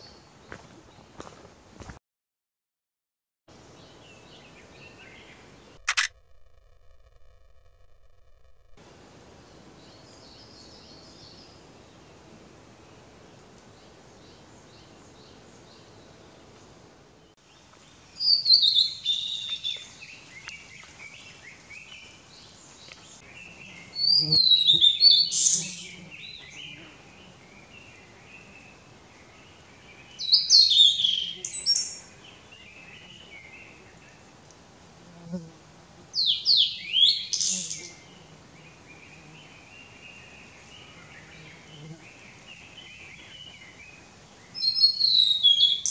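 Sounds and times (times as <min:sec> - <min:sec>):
bird singing whistled notes: 0:18.2 - 0:22.0, 0:22.8 - 0:26.8, 0:29.3 - 0:33.7, 0:36.2 - 0:38.1, 0:42.2 - 0:45.9.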